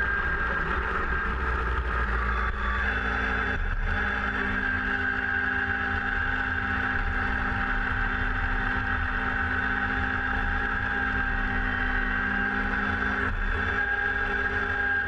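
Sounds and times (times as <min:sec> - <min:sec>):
diesel tractor engine running: 0:00.0 - 0:08.0
high whine: 0:00.0 - 0:15.0.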